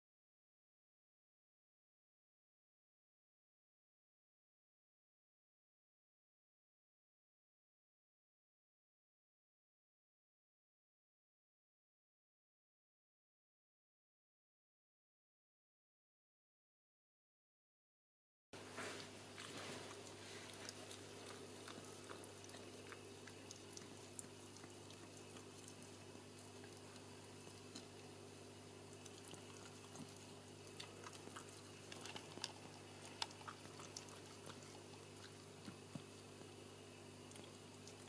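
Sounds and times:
steady low hum: 18.6s - 38.0s
dog licking wet clicks: 19.0s - 28.2s, 28.8s - 36.6s, 37.2s - 38.0s.

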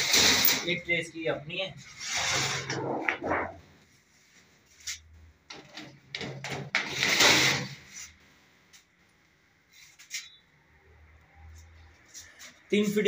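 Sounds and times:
metal tray scraping slide: 1.9s - 3.6s.

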